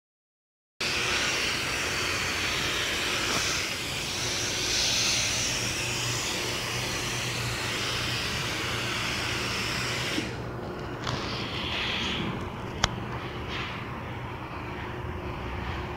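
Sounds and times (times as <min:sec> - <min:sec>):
spray gun hissing: 0:00.8 - 0:10.4.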